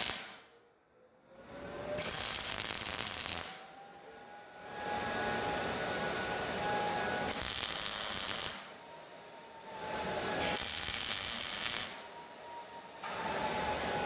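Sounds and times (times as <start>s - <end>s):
welding arc crackling: 0.0s - 0.4s, 2.0s - 3.6s, 7.3s - 8.8s, 10.4s - 12.1s.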